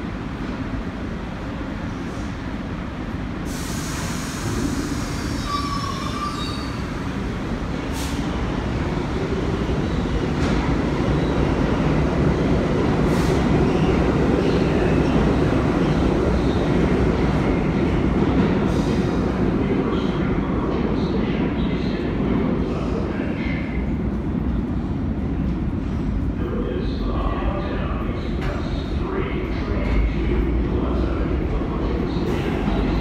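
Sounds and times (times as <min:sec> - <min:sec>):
subway train rumble: 0:00.0 - 0:33.0
high wheel squeal: 0:05.2 - 0:06.8.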